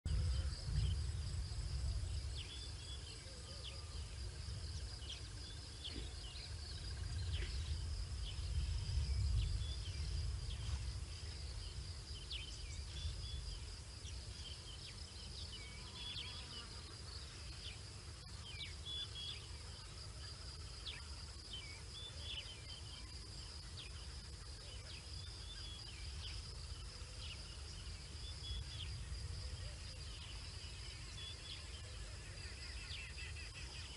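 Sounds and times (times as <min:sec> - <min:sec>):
low rumble: 0:00.1 - 0:02.8, 0:06.8 - 0:12.1
insects droning: 0:00.1 - 0:33.9.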